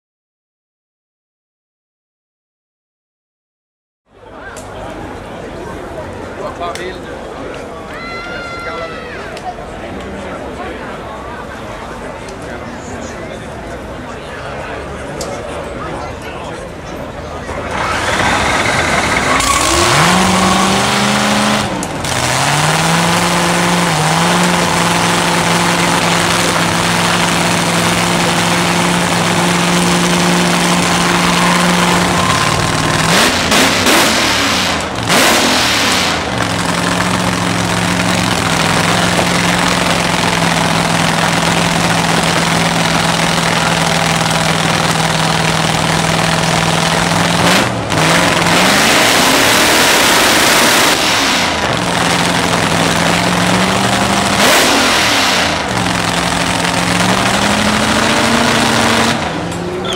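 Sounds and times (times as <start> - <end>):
drag car engine fast idle: 17.4 - 48.5, 50.1 - 59.4.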